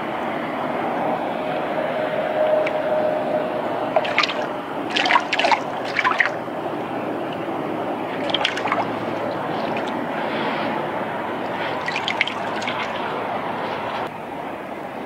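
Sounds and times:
fish splashing at water surface: 3.9 - 14.1.

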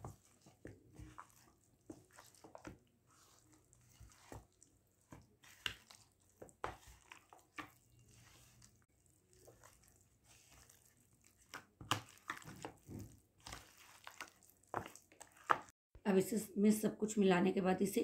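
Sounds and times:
hand squelching wet marinade: 0.0 - 15.8.

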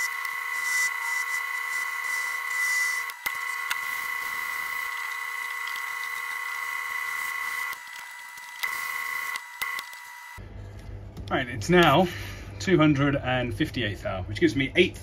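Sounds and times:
metal lathe whining: 0.0 - 10.4.

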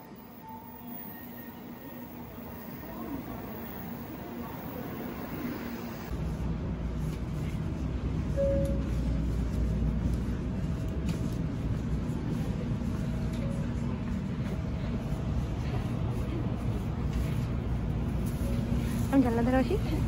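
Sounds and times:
train rumbling: 0.0 - 20.0.

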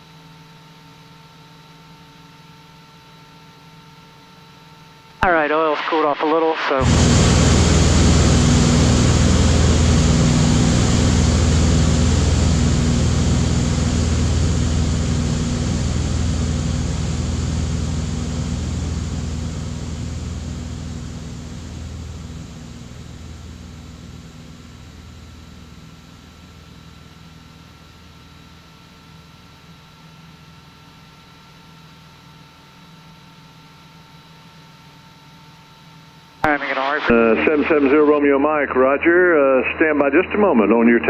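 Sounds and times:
propeller plane engine drone: 5.2 - 31.7, 36.4 - 41.0.

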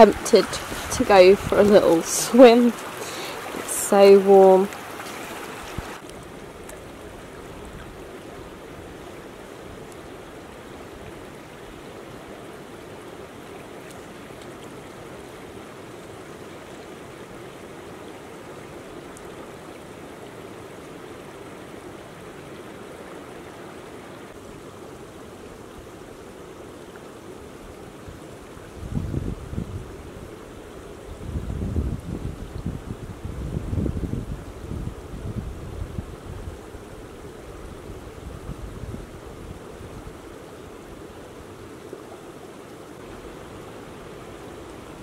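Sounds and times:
river rushing over rocks: 0.0 - 28.5, 39.1 - 45.0.

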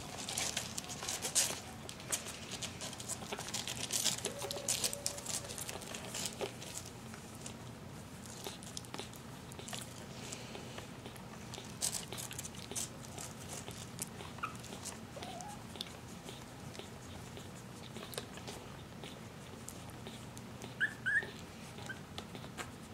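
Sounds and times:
puppy squeaks: 14.2 - 16.4, 20.6 - 22.5.

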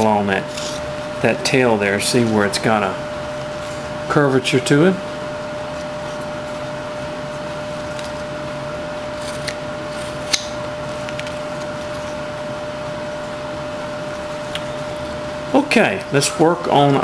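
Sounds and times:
steady room hum: 0.0 - 17.0
knife whittling wood: 9.0 - 10.6.

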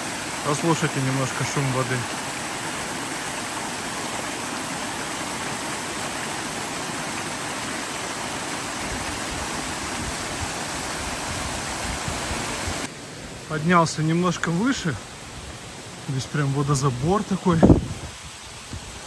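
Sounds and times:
waterfall pouring into rock pool: 0.0 - 12.9.

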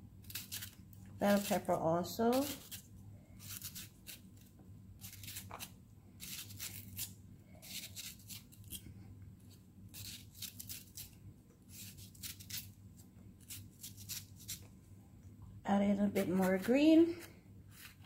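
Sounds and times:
knife slicing pepper: 0.2 - 2.8, 5.0 - 8.8, 9.9 - 12.8, 13.4 - 14.6, 16.2 - 18.0.

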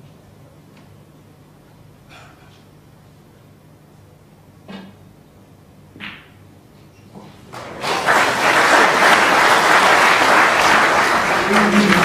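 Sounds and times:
audience applause: 7.5 - 12.0.

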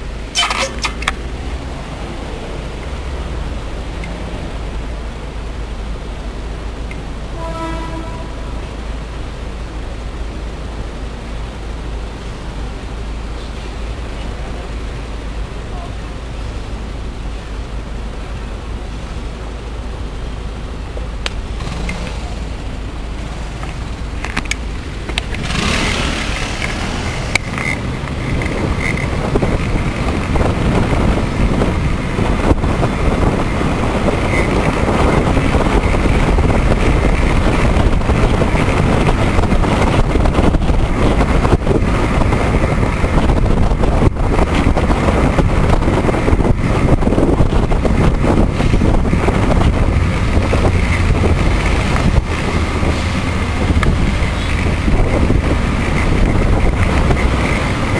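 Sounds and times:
wind rushing over microphone: 0.0 - 57.9
sharp clicks: 0.4 - 1.2.

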